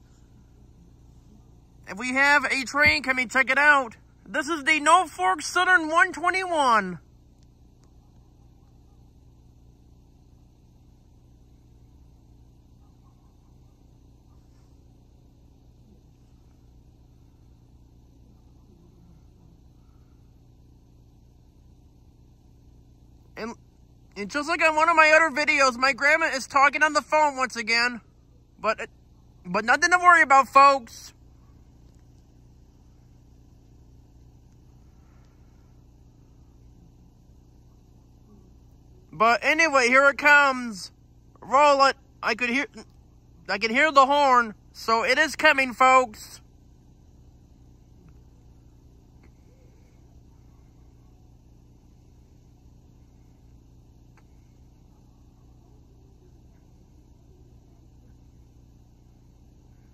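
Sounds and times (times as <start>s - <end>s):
faint low rumble: 0.0s - 59.9s.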